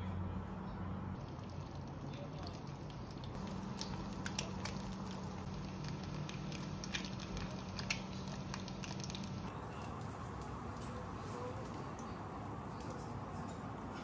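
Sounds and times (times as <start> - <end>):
low steady hum: 0.0 - 14.0
egg sizzling in oil: 1.2 - 9.5
oil popping and spitting: 1.2 - 9.5.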